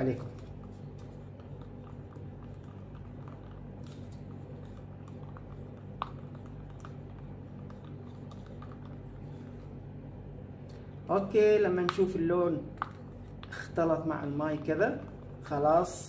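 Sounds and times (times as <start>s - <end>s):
stir stick scraping plastic cup: 0.0s - 9.8s
steady low hum: 0.0s - 16.0s.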